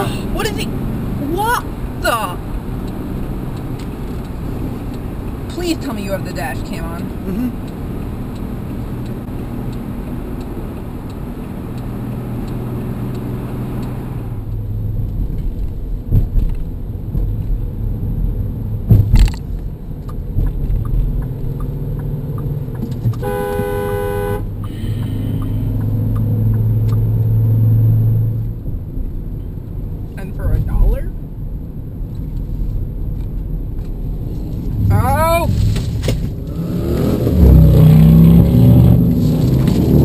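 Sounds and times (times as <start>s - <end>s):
car road noise and engine hum: 0.0s - 40.0s
faint regular ticking: 2.4s - 14.0s, 20.0s - 23.1s
car horn: 23.2s - 24.6s.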